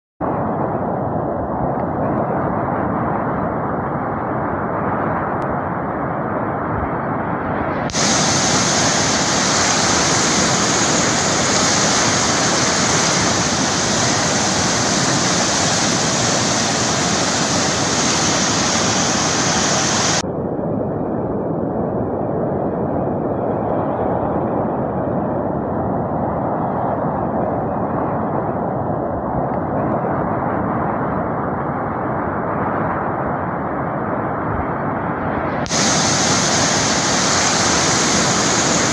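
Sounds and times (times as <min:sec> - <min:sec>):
flood water rushing: 0:07.9 - 0:20.2, 0:35.7 - 0:38.9.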